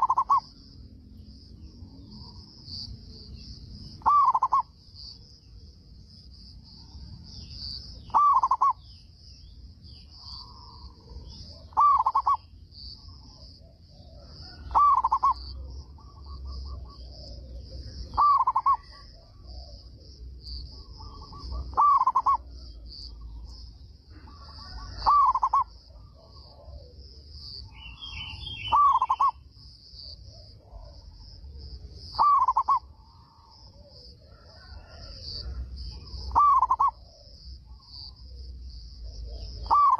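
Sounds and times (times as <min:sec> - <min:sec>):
dove cooing: 0:00.0 - 0:00.6, 0:04.0 - 0:04.7, 0:08.0 - 0:08.8, 0:10.2 - 0:23.4, 0:24.1 - 0:27.4, 0:28.5 - 0:29.4, 0:30.2 - 0:39.9
faint bird calls: 0:00.0 - 0:00.7, 0:04.0 - 0:05.2, 0:07.4 - 0:09.2, 0:09.9 - 0:39.9.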